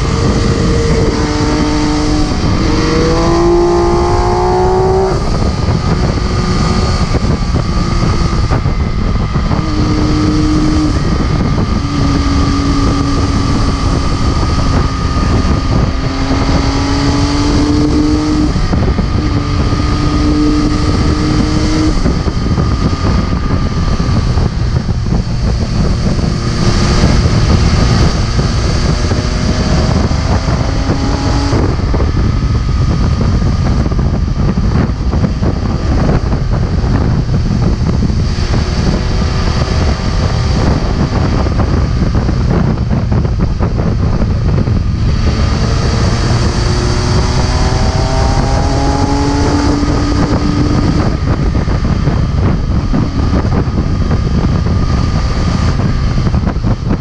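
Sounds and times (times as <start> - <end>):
motorcycle engine revving: 0.0 - 57.0
wind rumble on microphone: 0.0 - 57.0.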